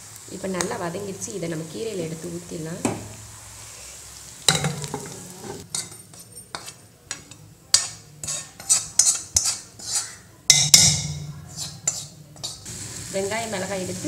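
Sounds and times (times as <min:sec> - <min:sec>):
metal spoon scraping cookware: 0:04.8 - 0:12.7.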